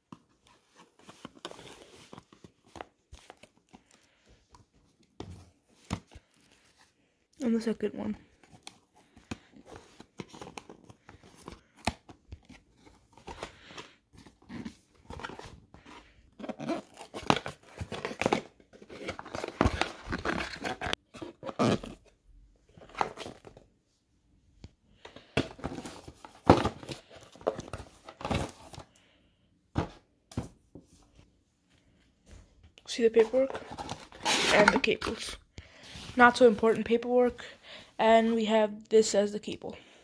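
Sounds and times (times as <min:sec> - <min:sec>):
cardboard scraping and rustling: 0:12.5 - 0:22.1, 0:33.1 - 0:35.3
cardboard tearing: 0:33.7 - 0:34.9.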